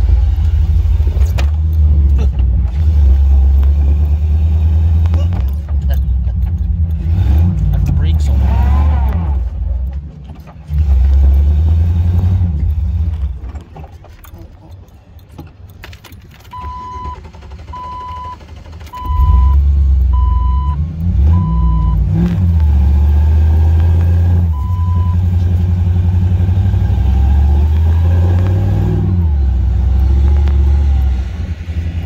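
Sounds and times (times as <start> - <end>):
engine running under load: 0.0 - 14.0, 16.6 - 32.0
backup alarm beeping: 16.5 - 22.0, 24.5 - 25.3.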